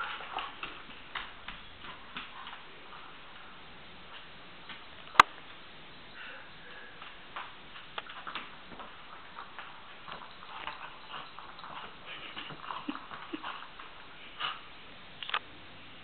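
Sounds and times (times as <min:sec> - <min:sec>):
dog claws clicking on wooden floor: 0:00.0 - 0:03.0.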